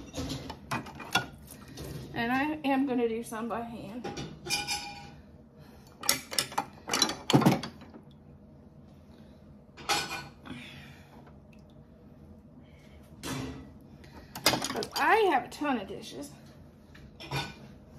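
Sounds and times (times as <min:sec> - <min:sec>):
dishes and utensils clinking: 0:00.0 - 0:01.4, 0:04.0 - 0:05.2, 0:17.2 - 0:17.7.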